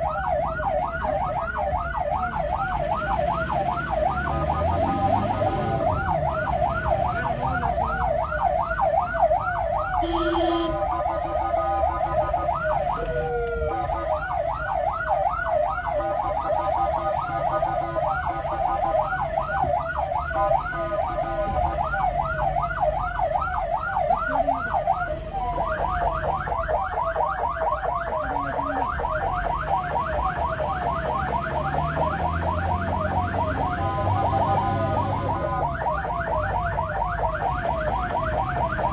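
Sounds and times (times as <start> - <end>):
ambulance siren yelping: 0.0 - 38.9
vehicle horn: 10.0 - 11.0.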